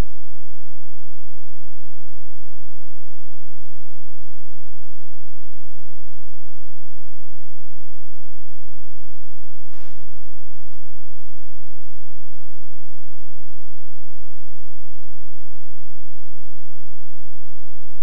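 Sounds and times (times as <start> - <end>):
faint click: 9.7 - 10.1.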